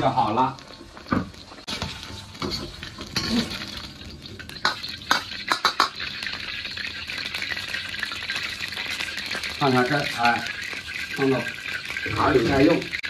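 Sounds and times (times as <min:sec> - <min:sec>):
oil sizzling: 0:00.0 - 0:13.0
ladle scraping a wok: 0:01.6 - 0:03.9.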